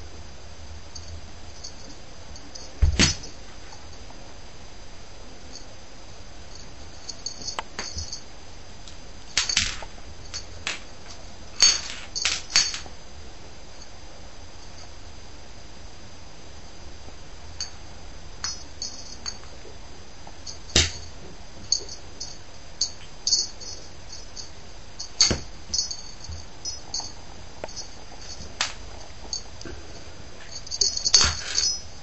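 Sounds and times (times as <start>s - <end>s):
small bell jingling: 1.0s - 4.0s, 6.5s - 8.3s, 18.4s - 19.5s, 20.4s - 29.6s, 30.4s - 32.0s.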